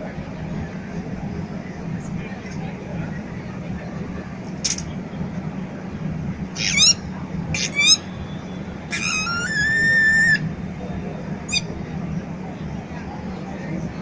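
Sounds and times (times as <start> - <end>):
murmur of street crowd: 0.0 - 14.0
high rising squeaks: 7.6 - 8.0, 8.9 - 10.4
high squeal: 7.6 - 8.2, 8.9 - 10.5.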